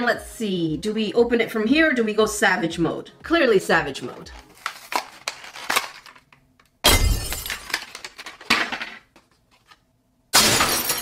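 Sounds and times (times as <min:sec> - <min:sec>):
cardboard box tearing: 0:04.5 - 0:06.2.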